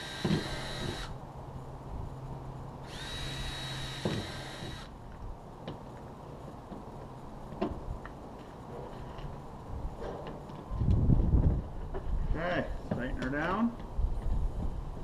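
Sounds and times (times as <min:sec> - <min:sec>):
power drill whining: 0:00.0 - 0:01.2, 0:02.8 - 0:04.9.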